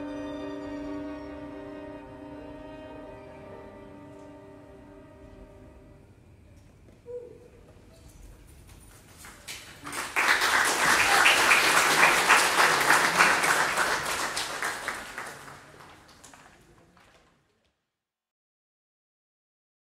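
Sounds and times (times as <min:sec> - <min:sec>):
audience applauding: 0:09.1 - 0:17.5.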